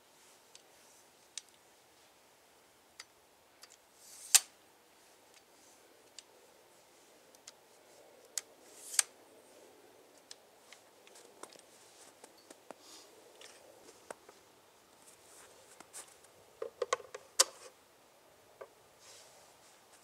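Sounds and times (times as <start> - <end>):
tripod sliding hiss and snap: 3.7 - 4.6, 8.3 - 9.2
tripod small clicks: 8.3 - 9.2.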